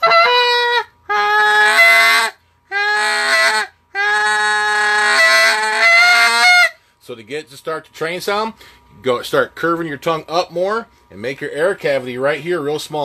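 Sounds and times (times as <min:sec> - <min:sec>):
goose call buzzy notes: 0:00.0 - 0:06.8.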